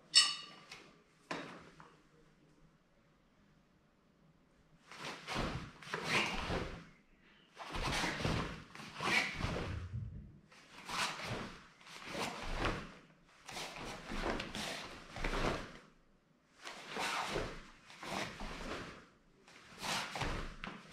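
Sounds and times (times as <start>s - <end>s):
cloth swishing and rustling: 4.8s - 7.0s, 7.6s - 15.9s, 16.5s - 20.9s.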